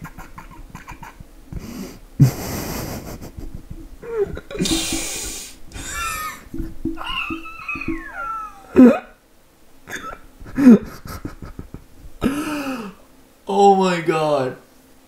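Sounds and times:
person hissing exhales: 1.6s - 2.9s, 4.6s - 6.4s.

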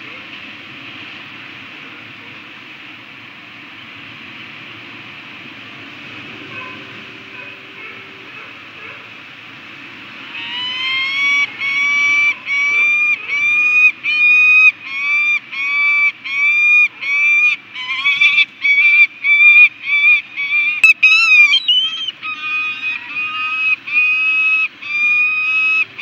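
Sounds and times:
falcons calling harshly: 10.2s - 26.0s.

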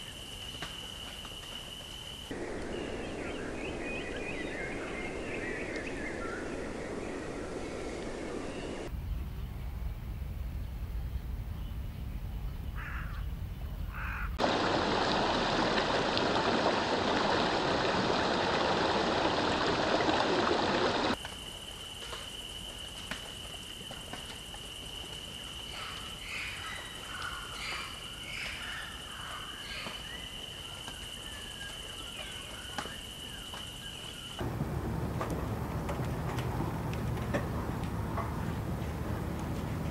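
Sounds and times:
bird chirps: 2.4s - 9.6s
loud rushing water: 14.4s - 21.2s, 34.4s - 39.9s
low rumble: 34.4s - 39.9s.

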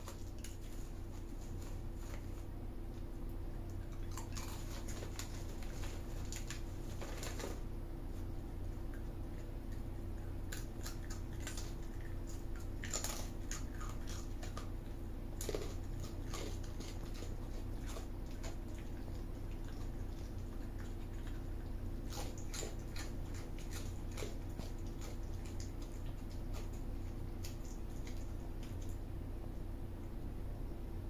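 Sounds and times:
animal crunching dry chips: 0.0s - 2.5s, 3.7s - 7.7s, 8.9s - 29.0s
steady low hum: 0.0s - 31.0s.

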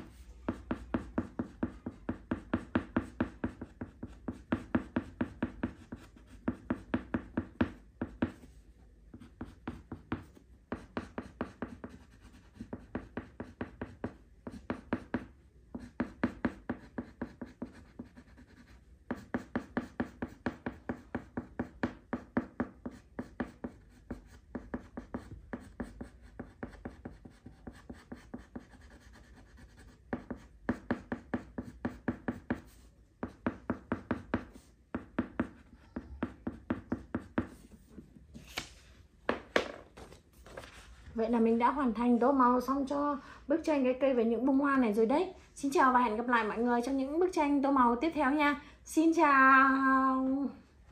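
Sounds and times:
crayon scratching on paper: 0.0s - 8.6s, 9.2s - 38.0s.

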